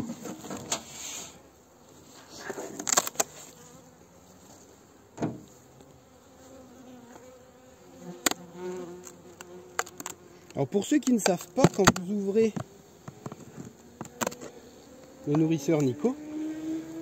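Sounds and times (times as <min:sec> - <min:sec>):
honeybees buzzing: 0:02.8 - 0:17.0
hive parts knocking: 0:10.9 - 0:14.4.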